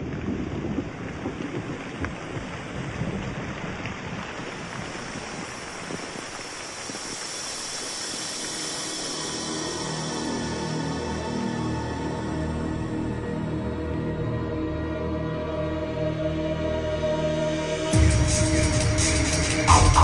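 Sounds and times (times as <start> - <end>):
heavy rain: 0.0 - 14.0, 17.8 - 20.0
droning music tone: 6.7 - 20.0.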